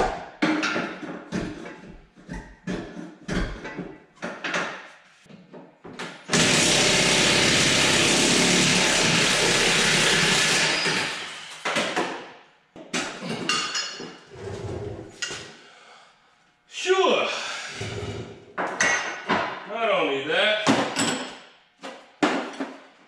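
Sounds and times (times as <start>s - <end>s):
impact wrench hammering: 6.0s - 12.3s.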